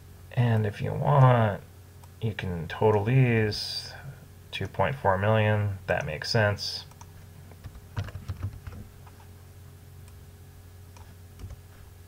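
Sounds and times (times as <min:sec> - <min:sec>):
steady low hum: 0:00.0 - 0:12.0
computer keyboard clicks: 0:06.9 - 0:08.8.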